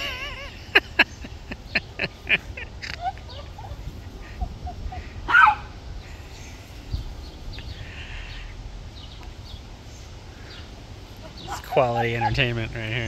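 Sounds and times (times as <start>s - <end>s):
small dog barking: 5.3s - 5.7s.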